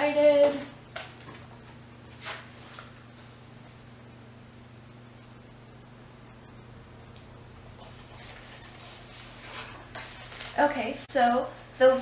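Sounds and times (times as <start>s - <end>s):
low steady hum: 0.0s - 12.0s
paper card rustling: 7.8s - 10.6s.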